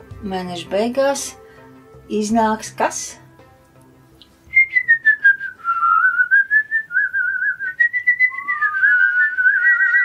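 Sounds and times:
person whistling a tune: 4.5s - 10.0s.

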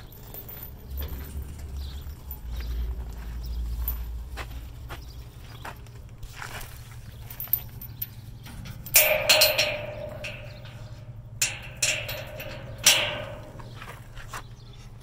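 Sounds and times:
metal chain clanking: 0.0s - 3.1s, 7.1s - 14.4s
steel container ringing: 8.8s - 13.9s.

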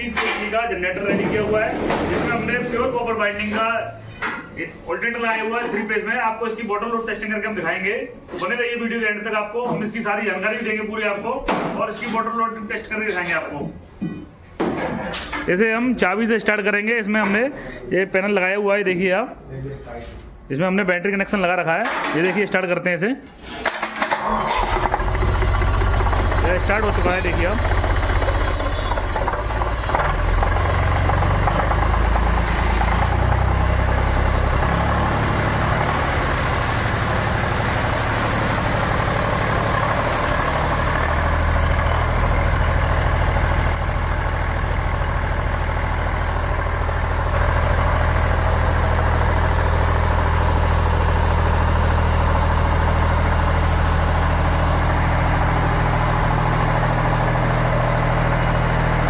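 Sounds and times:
diesel generator engine running: 0.0s - 4.0s, 24.1s - 59.0s.

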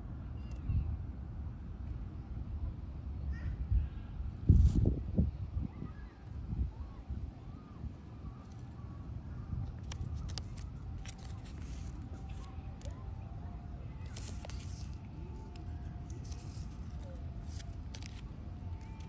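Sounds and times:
faint distant voices: 5.2s - 19.0s
crackling rustles: 9.6s - 13.0s, 14.0s - 19.0s.

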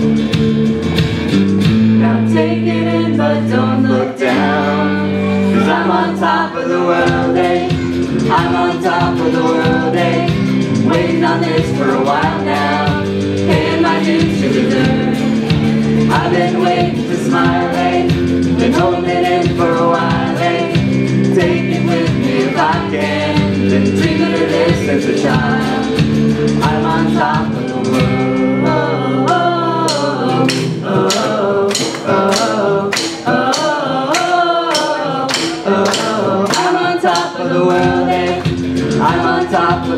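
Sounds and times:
live band playing: 0.0s - 39.9s
crowd singing along: 1.8s - 39.9s
woman singing lead: 2.0s - 39.9s
sharp rhythmic strokes: 29.3s - 39.9s.

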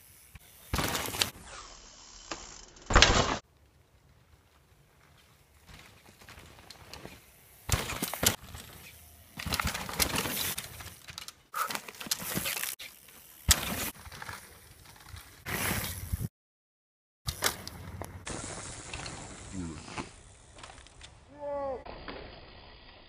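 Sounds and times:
bike tyres crunching on dirt: 0.1s - 1.6s, 2.8s - 16.3s, 17.3s - 21.3s
bike landing thuds: 0.7s - 1.4s, 2.9s - 3.4s, 5.6s - 10.9s, 13.4s - 14.2s.

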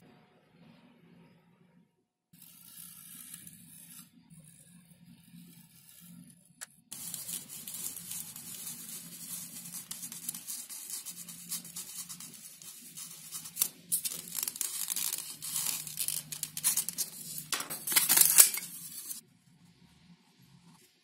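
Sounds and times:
utility knife cutting foam: 2.4s - 4.6s, 6.9s - 17.5s
compass pen scratching: 6.9s - 19.2s.

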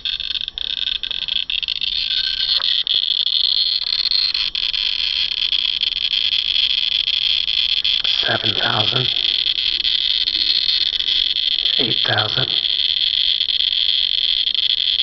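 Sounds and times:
geiger counter clicking rapidly: 0.0s - 15.0s.

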